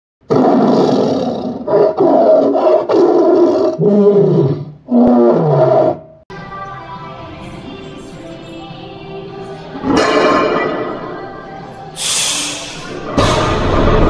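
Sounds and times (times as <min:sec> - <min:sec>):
loud animal roars: 0:00.3 - 0:06.1.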